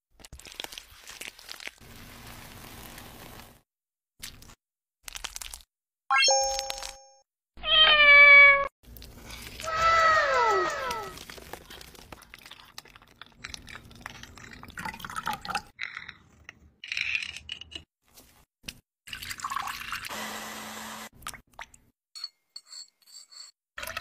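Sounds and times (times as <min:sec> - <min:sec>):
blender running: 0:20.1 - 0:21.1.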